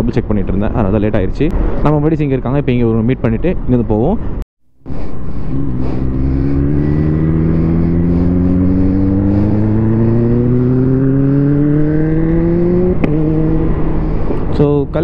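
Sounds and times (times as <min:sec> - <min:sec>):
motorcycle engine accelerating: 0:04.9 - 0:14.5.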